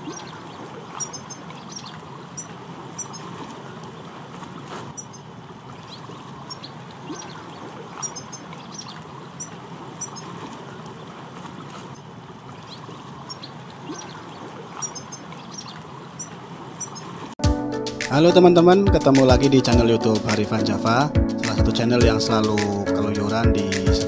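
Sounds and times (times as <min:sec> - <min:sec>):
finches twittering: 0:00.0 - 0:03.5, 0:04.9 - 0:10.4, 0:12.0 - 0:17.2.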